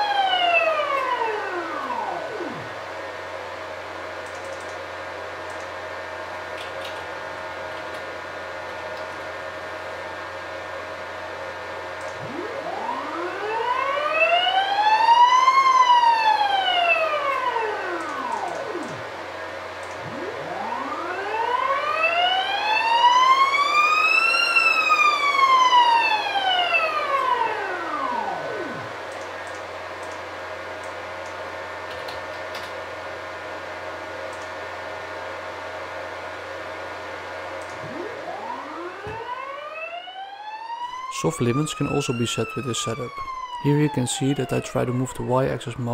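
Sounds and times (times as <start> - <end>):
stepper motor whine: 0.0 - 3.3, 9.7 - 29.1, 37.6 - 43.5
steady hum: 0.0 - 45.9.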